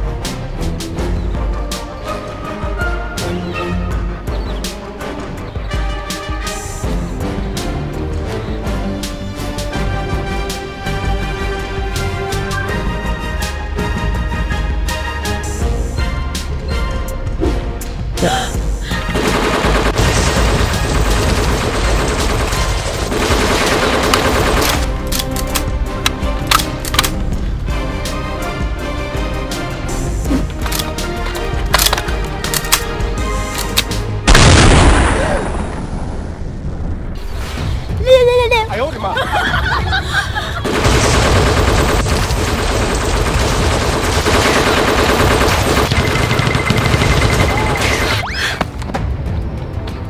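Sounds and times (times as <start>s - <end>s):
automatic gunfire: 40.7s - 48.1s.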